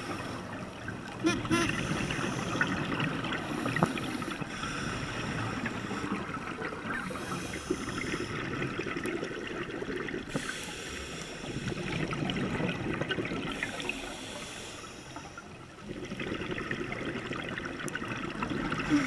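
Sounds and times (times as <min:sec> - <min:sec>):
bubbles gurgling: 0:00.0 - 0:10.4, 0:11.6 - 0:14.0, 0:15.6 - 0:19.0
scuba regulator breathing: 0:01.4 - 0:02.8, 0:03.4 - 0:06.2, 0:07.0 - 0:08.4, 0:10.3 - 0:12.0, 0:13.6 - 0:15.4
faint crackling ticks: 0:03.6 - 0:04.7.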